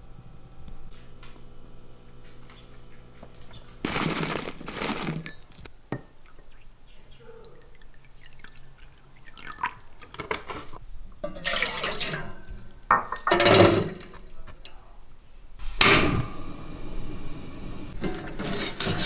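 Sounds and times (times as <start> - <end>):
water trickling into bowl: 6.0 - 10.2
water splashing into metal pot: 7.5 - 10.3, 11.2 - 14.2.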